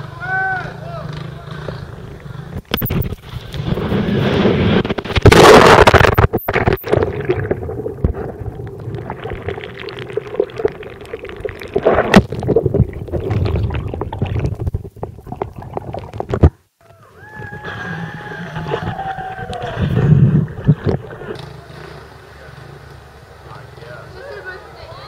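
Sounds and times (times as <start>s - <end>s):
underwater bubbling and gurgling: 2.6s - 16.7s, 18.5s - 21.4s.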